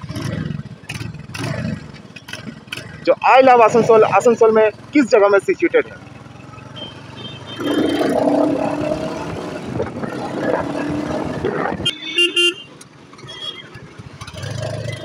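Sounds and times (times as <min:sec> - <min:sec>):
motorcycle engine running: 0:00.0 - 0:15.0
road and wind noise: 0:00.0 - 0:15.0
short horn beeps: 0:11.8 - 0:13.8.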